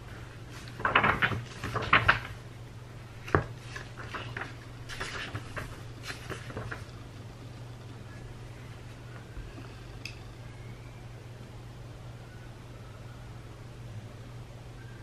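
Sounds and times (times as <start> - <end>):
paper pages rustling: 0.0 - 2.4, 3.1 - 7.2.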